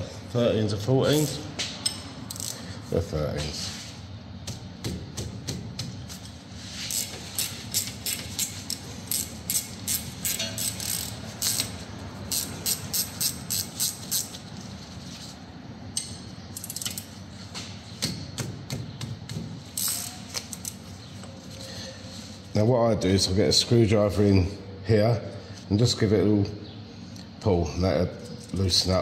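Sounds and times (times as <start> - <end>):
ratcheting spanner clicking: 1.2 - 2.6, 6.9 - 14.5, 15.9 - 17.2.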